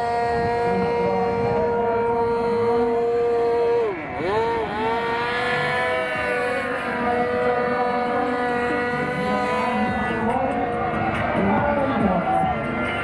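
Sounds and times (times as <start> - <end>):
model plane engines whining: 0.0 - 13.0.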